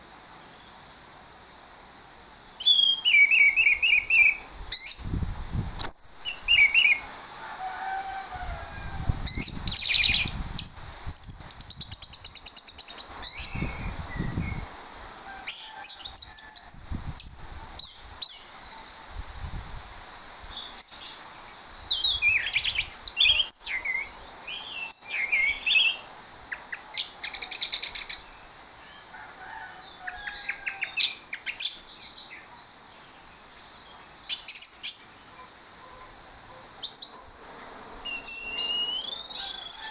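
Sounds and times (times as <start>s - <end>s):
bird singing whistles and trills: 2.6s - 5.1s, 5.8s - 7.0s, 9.2s - 14.7s, 21.9s - 26.1s, 36.8s - 39.9s.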